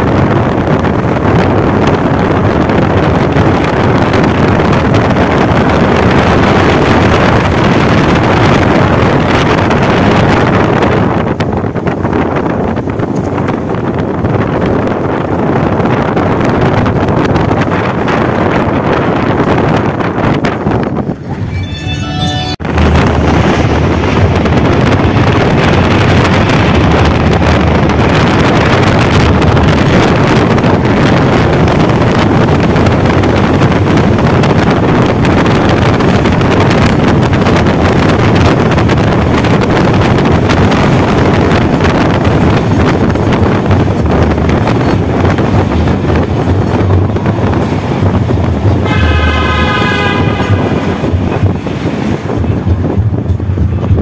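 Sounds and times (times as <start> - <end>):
wind buffeting microphone: 0.0 - 21.6, 22.6 - 54.0
vehicle road noise: 0.0 - 54.0
vehicle horn: 21.4 - 23.1, 48.8 - 51.4.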